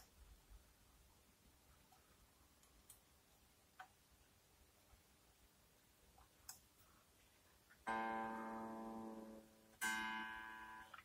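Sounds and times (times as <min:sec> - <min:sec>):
electric guitar string plucked: 0:07.9 - 0:11.0.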